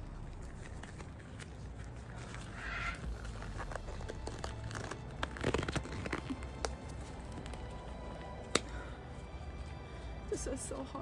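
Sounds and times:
gloves crinkling: 0.0 - 11.0
soft background music: 0.0 - 11.0
glove snapping: 0.4 - 9.0.

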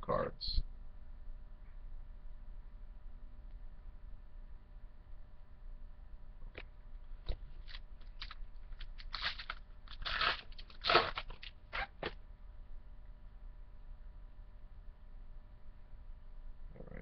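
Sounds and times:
wrapper crinkling and ripping: 7.6 - 12.2.

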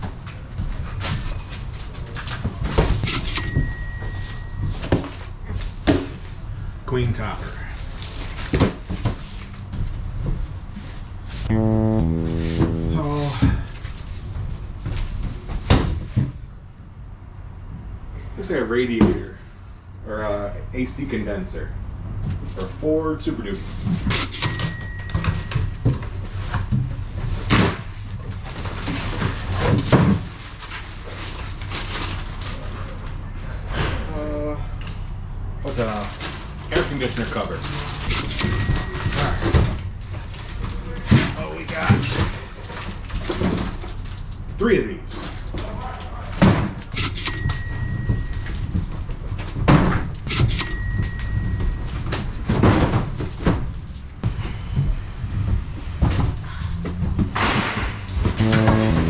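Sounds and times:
steady low hum: 11.5 - 14.6
cardboard and plastic rustling: 25.2 - 33.1, 36.0 - 46.9, 51.4 - 57.3.

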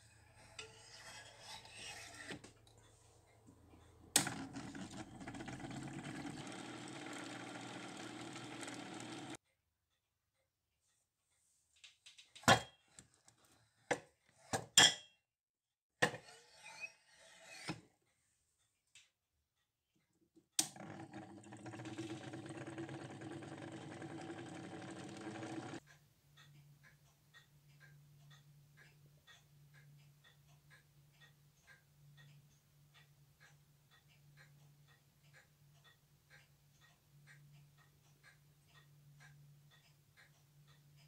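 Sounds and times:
machine motor running: 4.9 - 9.4.

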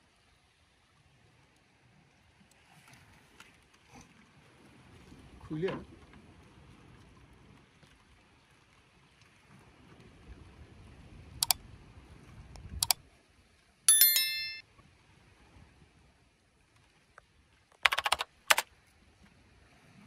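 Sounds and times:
small metallic bell ring: 13.9 - 14.6
sharp clicks: 17.8 - 18.6.

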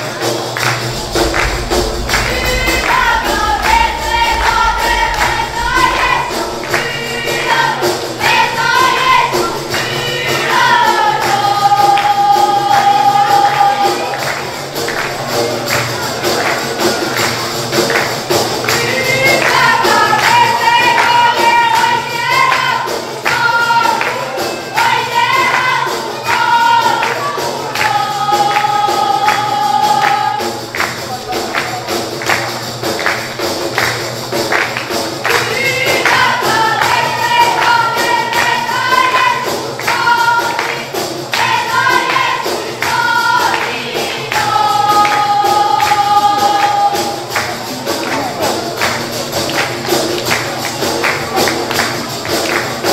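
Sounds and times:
frame drums beating: 0.0 - 52.9
women singing: 0.6 - 15.1, 18.6 - 30.8, 35.3 - 47.5.

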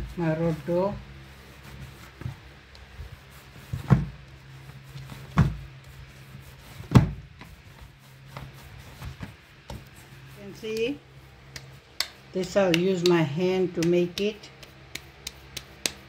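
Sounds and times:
soft knocks and rubbing: 1.6 - 10.8
dough thumping in plastic basin: 3.7 - 4.3, 5.2 - 5.8, 6.8 - 7.6.

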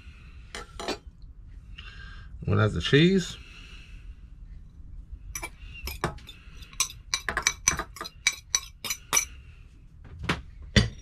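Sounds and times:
metal fork clinking on bowl: 6.7 - 9.3.

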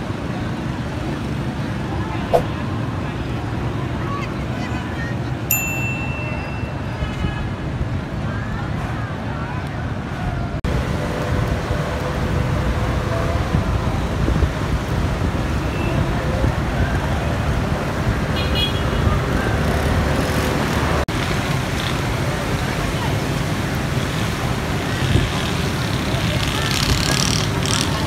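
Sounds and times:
road traffic: 0.0 - 28.0
wind buffeting microphone: 10.0 - 18.4.

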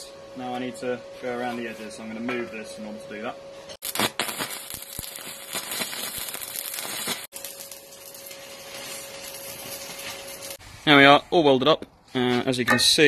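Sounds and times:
arc welding crackle: 3.8 - 11.0.

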